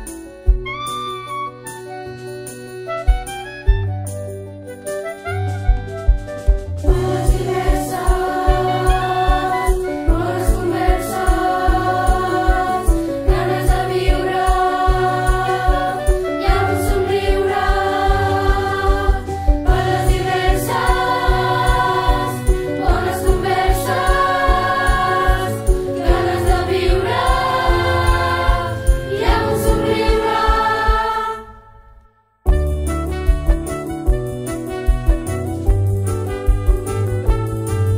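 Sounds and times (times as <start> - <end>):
instrumental backing with beat: 0.0 - 31.7, 32.5 - 37.9
children's choir singing: 6.9 - 31.9.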